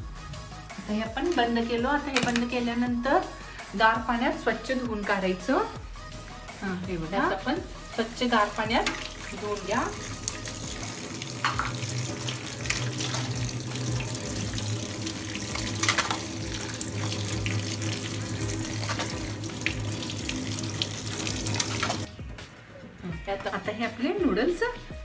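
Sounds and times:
tap water running into colander: 0:07.9 - 0:22.1
noodles splashing being tossed: 0:08.5 - 0:22.1.

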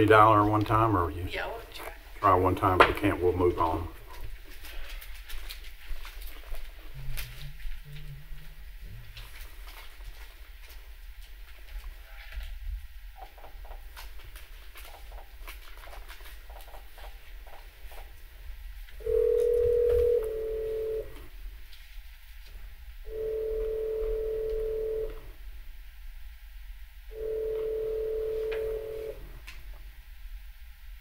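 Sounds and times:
telephone ringback tone: 0:19.0 - 0:21.2, 0:23.1 - 0:25.2, 0:27.1 - 0:29.2.

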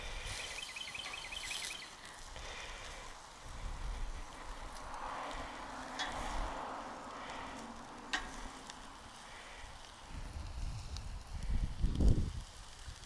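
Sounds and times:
steaks sizzling on a grill: 0:00.0 - 0:13.0
bird chirping trill: 0:00.4 - 0:02.0.

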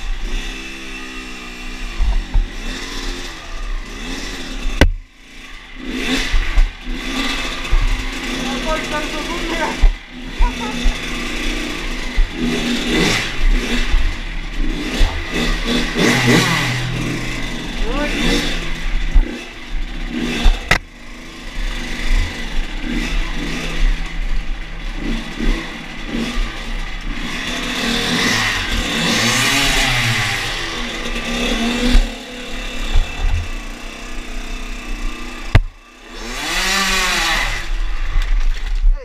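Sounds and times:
dirt bike engine revving: 0:00.0 - 0:38.8
sharp knock: 0:35.5 - 0:35.7.

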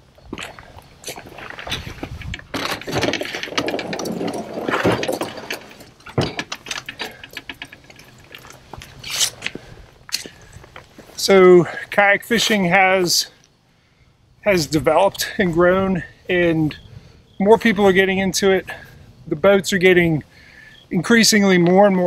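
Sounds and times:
knocks and clicks from hull and cart: 0:01.2 - 0:08.9
plastic hull scraping: 0:01.2 - 0:09.4.

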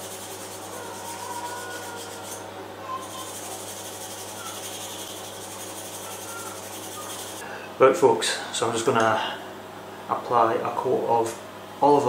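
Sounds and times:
hand-sanding wood: 0:00.0 - 0:02.4, 0:03.0 - 0:07.4.

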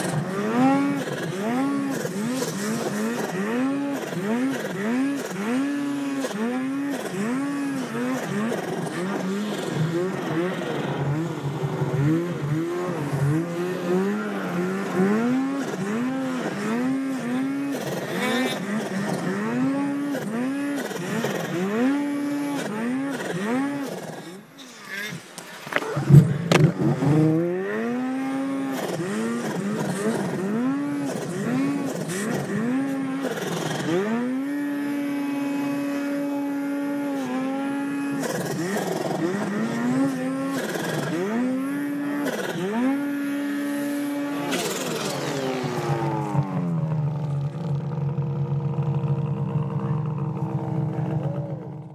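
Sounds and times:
snowmobile engine revving: 0:00.0 - 0:51.9.

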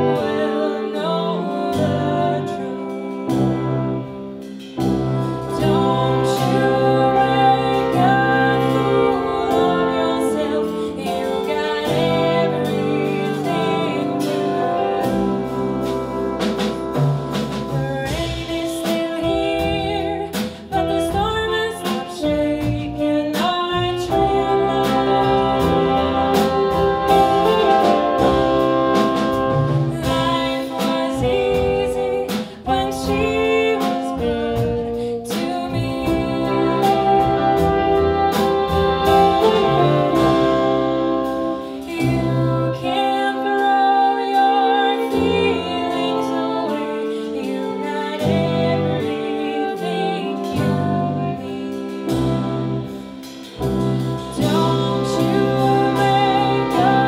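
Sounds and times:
jazz ensemble playing: 0:00.0 - 0:57.0
saxophone: 0:00.0 - 0:57.0
trumpet: 0:00.0 - 0:57.0.

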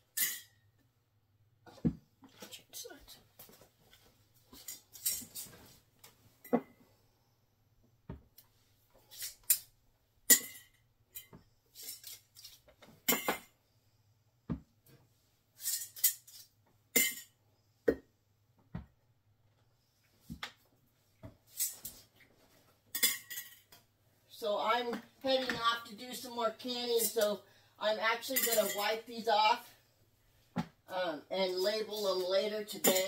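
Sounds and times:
glass jars and lids clinking: 0:17.0 - 0:17.3, 0:22.9 - 0:23.7, 0:28.4 - 0:28.9.

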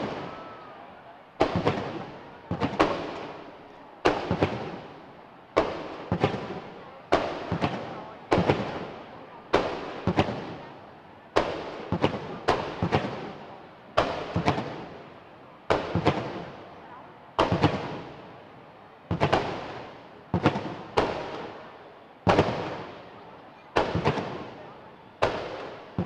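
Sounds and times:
echo of bangs: 0:01.4 - 0:03.3.

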